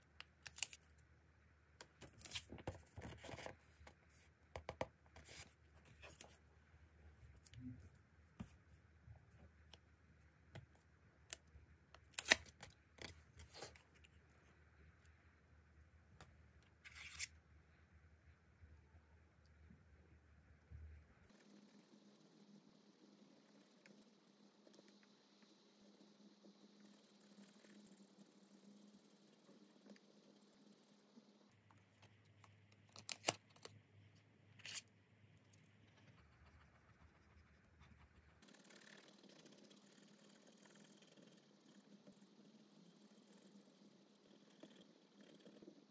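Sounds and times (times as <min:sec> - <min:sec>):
paper scraping rustle: 0:16.8 - 0:17.3.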